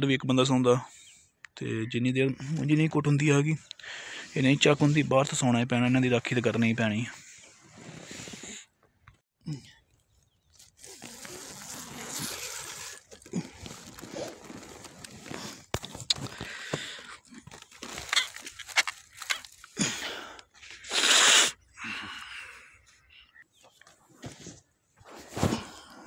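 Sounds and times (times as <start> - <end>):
rustling fabric: 10.6 - 15.7.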